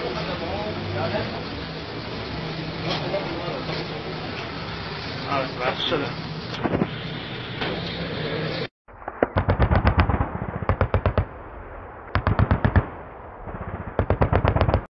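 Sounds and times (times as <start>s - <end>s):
automatic gunfire bursts: 12.2s - 12.9s, 13.7s - 14.9s.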